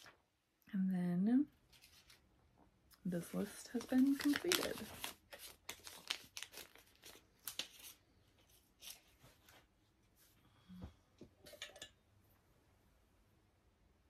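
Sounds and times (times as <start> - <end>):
paper rustling: 1.7 - 2.3, 3.5 - 9.7.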